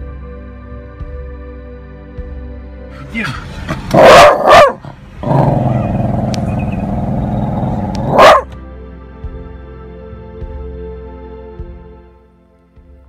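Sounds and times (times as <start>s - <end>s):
soft background music: 0.0s - 13.0s
dog growling: 3.8s - 8.4s
dog barking: 3.9s - 8.5s.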